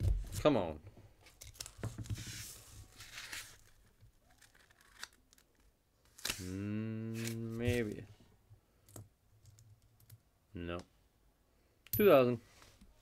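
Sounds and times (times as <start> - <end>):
paper tearing and crinkling: 2.5 - 7.5.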